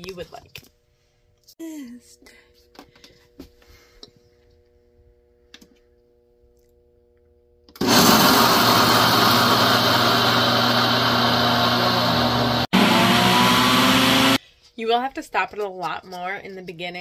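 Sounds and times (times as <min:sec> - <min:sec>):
blender grinding peanuts: 0:07.8 - 0:14.4.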